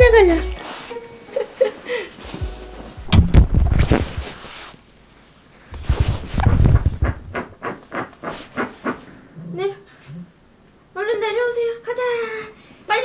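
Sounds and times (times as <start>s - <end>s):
microphone handling bumps: 2.3s - 4.5s, 5.8s - 7.4s.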